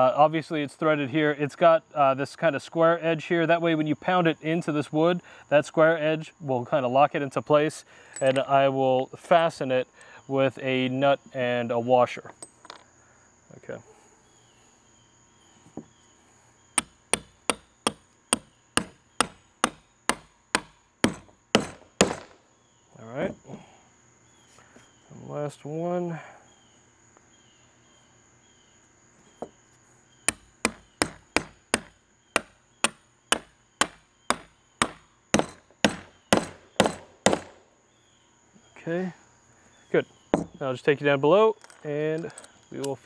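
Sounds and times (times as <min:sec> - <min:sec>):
hammer striking bolt into wood: 0:16.8 - 0:22.3, 0:30.3 - 0:37.6.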